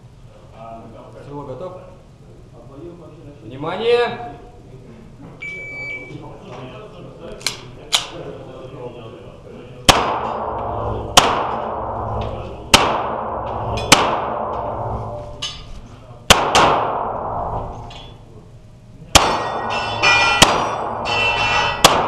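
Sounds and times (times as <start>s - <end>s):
pistol shots echoing indoors: 9.8s - 15.6s, 16.3s - 18.1s, 19.1s - 22.0s.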